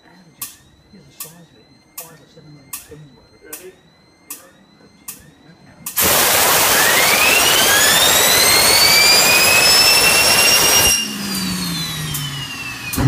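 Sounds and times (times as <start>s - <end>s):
jet turbine whine: 0.0s - 13.0s.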